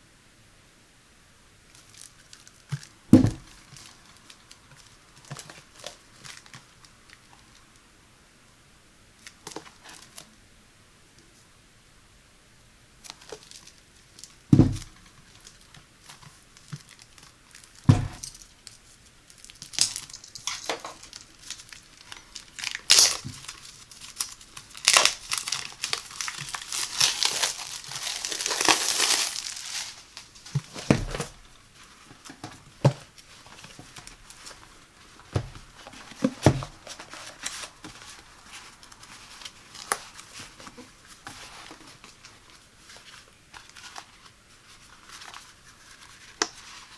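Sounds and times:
plastic shrink-wrap crinkling and tearing: 1.7s - 7.6s, 13.0s - 46.9s
dull thumps of paper pads: 2.7s - 3.7s, 14.5s - 15.0s, 17.8s - 18.3s, 30.5s - 31.4s, 35.3s - 37.1s.

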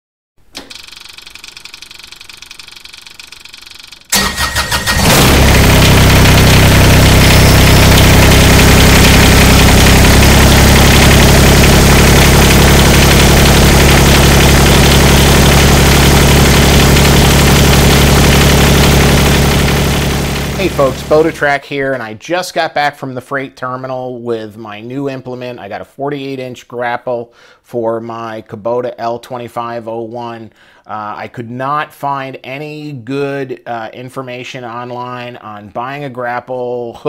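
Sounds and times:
engine cranking and idling: 0.6s - 21.4s.

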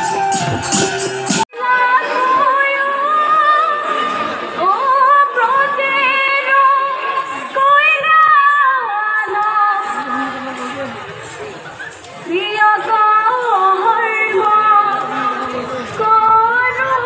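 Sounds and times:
tambourine-led music: 0.0s - 1.5s.

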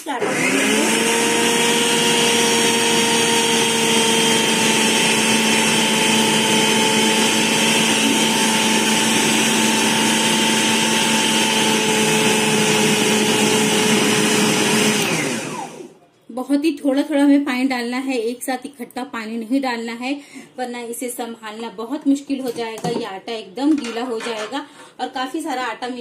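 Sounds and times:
food processor motor whining: 0.0s - 15.9s.

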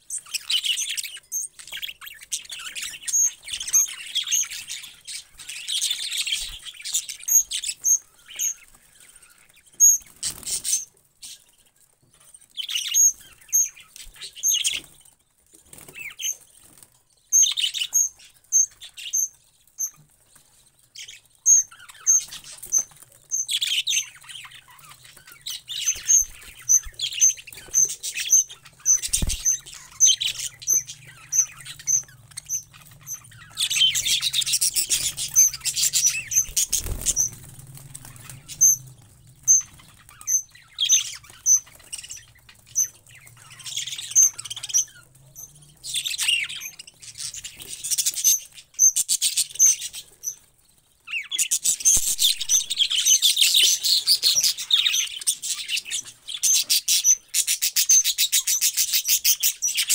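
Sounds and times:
budgerigars chirping and chattering: 0.0s - 59.9s
wings fluttering: 1.6s - 11.6s, 12.8s - 17.0s, 21.1s - 48.6s, 51.2s - 56.0s.

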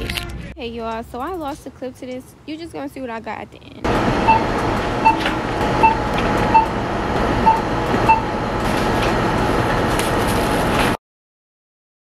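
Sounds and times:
steady background noise: 0.0s - 11.0s
barcode scanner beeps: 4.2s - 6.8s, 7.4s - 8.4s.

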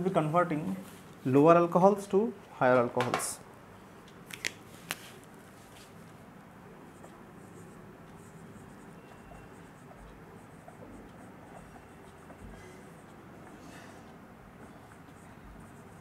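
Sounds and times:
marker scratching on whiteboard: 6.8s - 14.0s, 14.6s - 16.0s.

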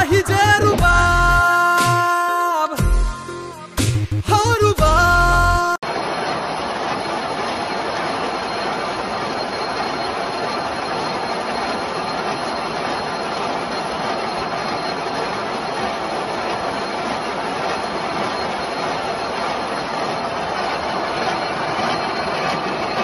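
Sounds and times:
gear hobbing machine cutting: 5.8s - 23.0s.

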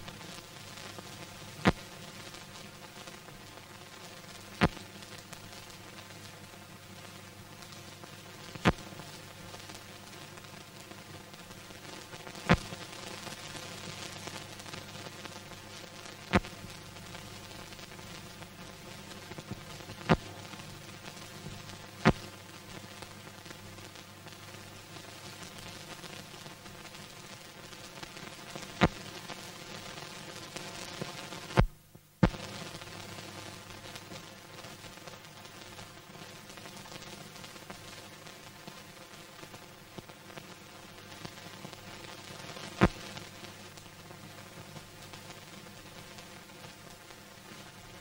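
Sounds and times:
film soundtrack hiss and crackle: 0.0s - 48.0s
loud pops: 12.5s - 12.8s, 16.3s - 16.6s, 22.0s - 22.3s, 31.6s - 32.6s, 42.8s - 43.2s
sharp loud pops: 42.8s - 43.0s.

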